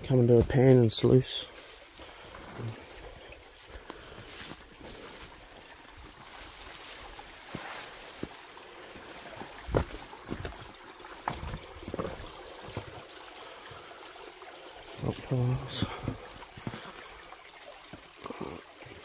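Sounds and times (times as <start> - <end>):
creek trickling over stones: 0.0 - 19.0
knocks and rustles in undergrowth: 0.3 - 12.9.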